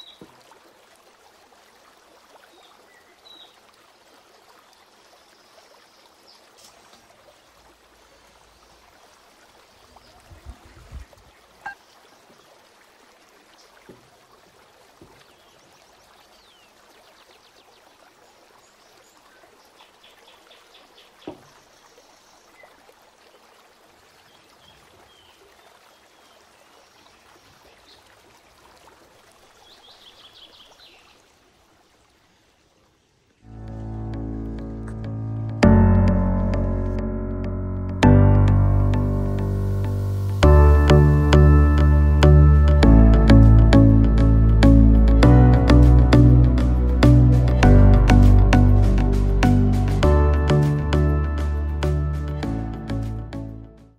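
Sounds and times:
water trickling: 0.0 - 37.0
light knocks: 21.2 - 21.5.

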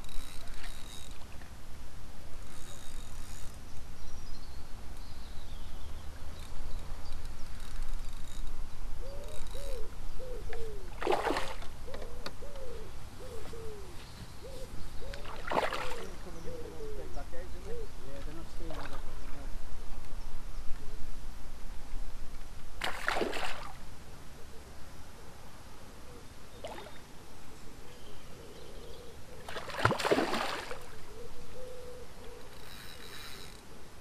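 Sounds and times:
high birdsong: 2.4 - 21.1, 24.3 - 33.7
low bird call: 9.0 - 11.0, 11.8 - 18.0, 26.0 - 33.6
splashes on water: 15.2 - 16.1, 29.5 - 30.9.

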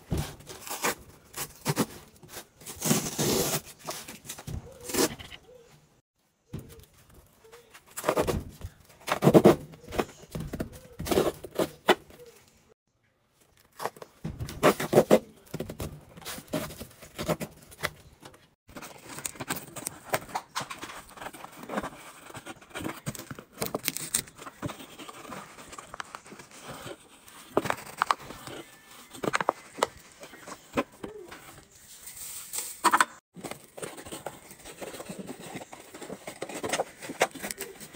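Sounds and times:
cardboard boxes knocking and rustling: 8.0 - 12.1, 13.8 - 18.0, 33.4 - 37.9.

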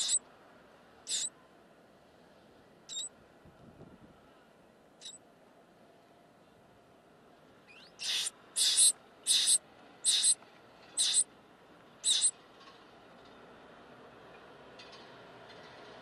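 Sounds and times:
nestlings begging screams: 0.0 - 0.2, 1.1 - 1.3, 7.7 - 10.4, 11.0 - 11.2, 12.0 - 12.3.

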